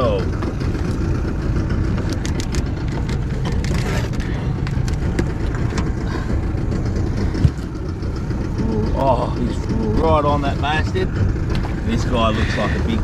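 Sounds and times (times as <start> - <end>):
boat motor idling: 0.0 - 13.0
sharp clicks and knocks: 1.9 - 6.0.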